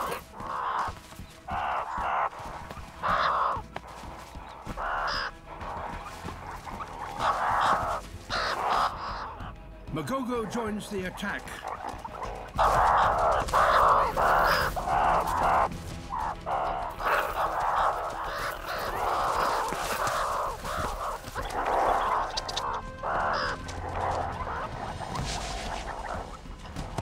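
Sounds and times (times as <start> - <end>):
meerkats screeching and growling: 0.0 - 27.0.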